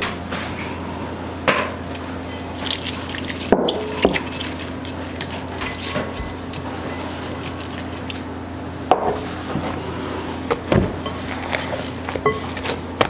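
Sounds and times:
steady low hum: 0:00.0 - 0:13.0
kitchen utensils clattering: 0:05.2 - 0:07.8.

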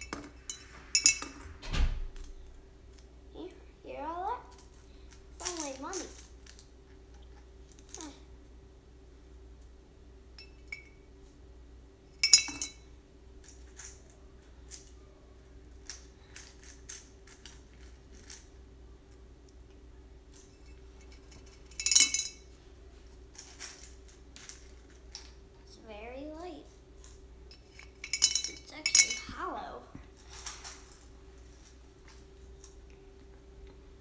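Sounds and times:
coins clinking into piggy bank: 0:00.0 - 0:01.6, 0:04.5 - 0:06.7, 0:12.2 - 0:12.8, 0:20.4 - 0:22.4, 0:27.0 - 0:29.3
loud ringing coin clinks: 0:00.0 - 0:01.6, 0:12.2 - 0:12.8, 0:20.5 - 0:22.4, 0:27.0 - 0:29.2.

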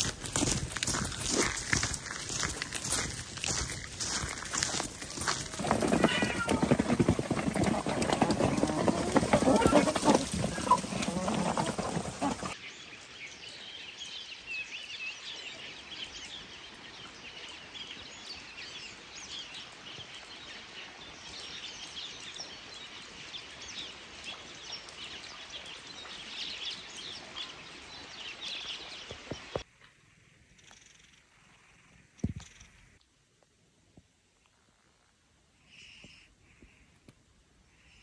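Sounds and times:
faint outdoor hiss: 0:12.6 - 0:38.0.

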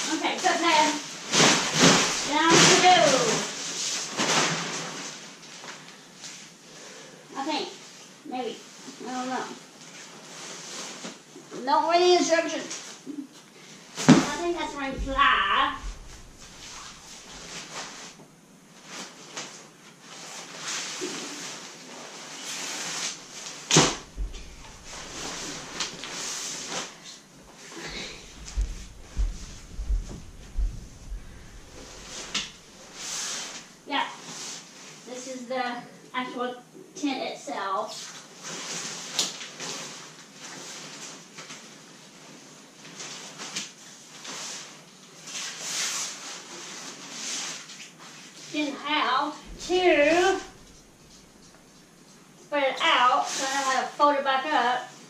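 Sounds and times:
nylon tent fabric rustling: 0:00.0 - 0:05.6, 0:14.0 - 0:18.2, 0:18.8 - 0:35.0, 0:49.4 - 0:52.0
knocks on tile floor: 0:23.8 - 0:25.6, 0:28.2 - 0:32.6.

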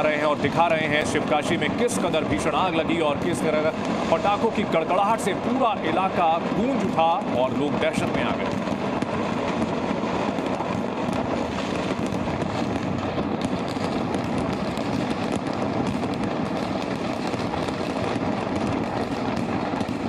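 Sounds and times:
firecrackers crackling: 0:00.0 - 0:20.0.

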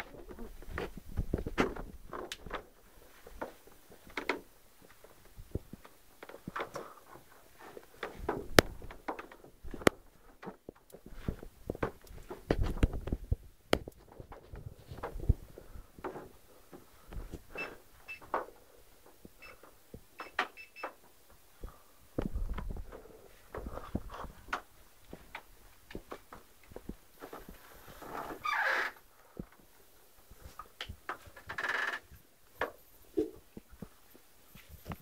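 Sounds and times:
rustling handling noise: 0:00.0 - 0:19.8.

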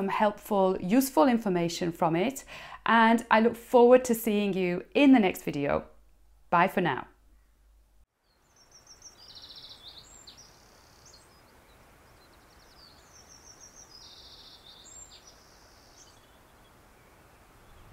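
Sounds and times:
soft steady hiss: 0:04.1 - 0:17.9
small birds chirping: 0:08.2 - 0:17.9.

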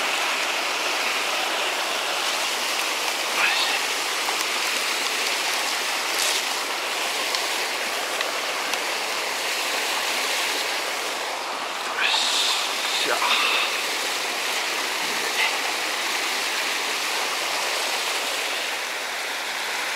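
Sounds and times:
running water rushing: 0:00.0 - 0:19.9.

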